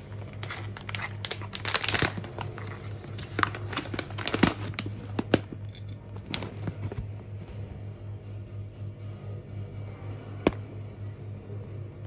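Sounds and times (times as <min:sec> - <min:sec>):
foil bag crinkling: 0:00.0 - 0:07.2
low hum: 0:00.0 - 0:12.0.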